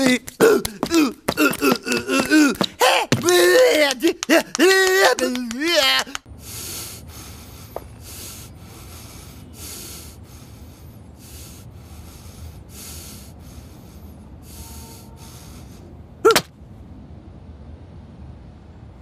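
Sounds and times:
heavy hissy breathing: 0:06.2 - 0:16.2.

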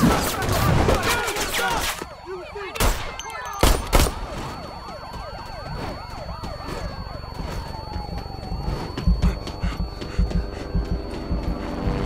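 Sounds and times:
police sirens wailing: 0:00.0 - 0:12.0
gunshots: 0:02.8 - 0:04.5.

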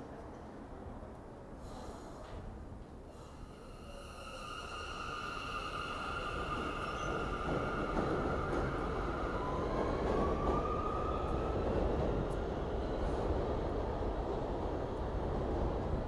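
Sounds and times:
train wheels rumbling on rails: 0:02.2 - 0:16.0
electric train whine: 0:03.2 - 0:13.8.

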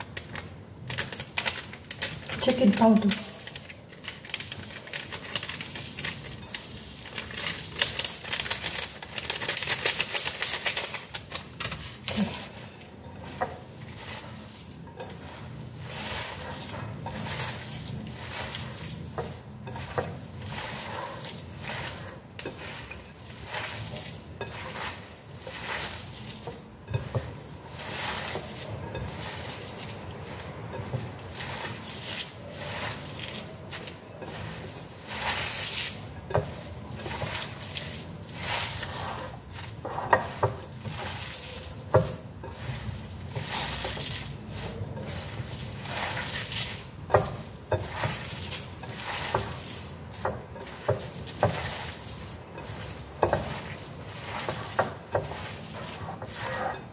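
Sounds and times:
hands squishing food filling: 0:00.0 - 0:56.9
seasoning powder shaken: 0:01.1 - 0:12.4.

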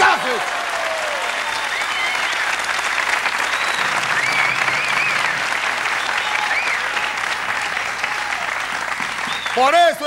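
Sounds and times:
audience applauding: 0:00.0 - 0:10.0
high voices cheering: 0:00.0 - 0:10.0.

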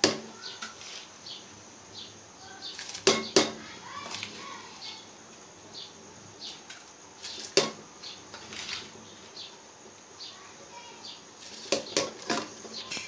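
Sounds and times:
pot knock: 0:03.0 - 0:03.6.

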